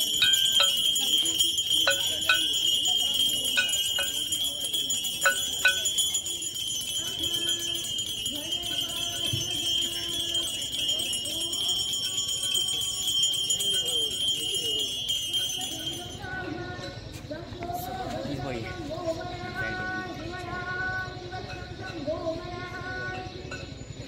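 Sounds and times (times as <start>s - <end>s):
hand bells jingling: 0.0s - 17.2s.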